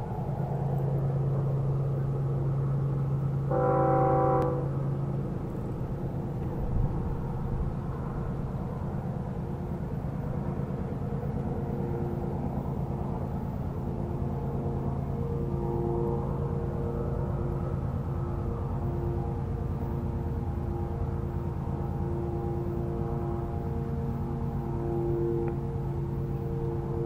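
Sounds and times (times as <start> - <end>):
diesel locomotive engine drone: 0.0 - 27.0
train air horn blast: 3.5 - 4.8.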